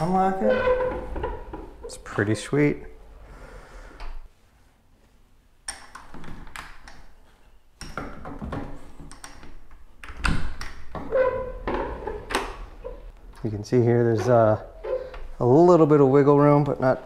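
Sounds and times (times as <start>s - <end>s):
door sliding against frame: 0.0s - 2.2s, 14.1s - 15.4s.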